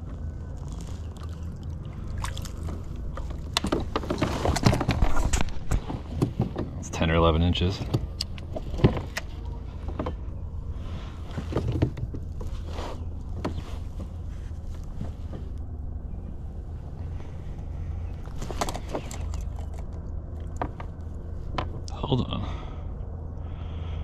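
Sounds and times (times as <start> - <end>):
steady low rumble: 0.0 - 24.0
fishing gear knocking and rustling: 2.3 - 6.8, 18.2 - 21.9.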